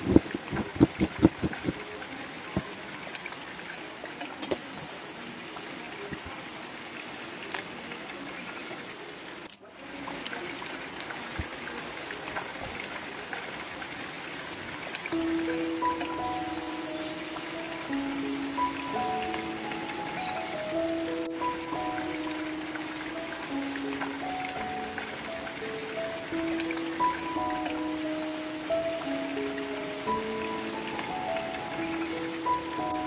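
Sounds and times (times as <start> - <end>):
hiss of rain: 0.0 - 33.0
music: 15.1 - 33.0.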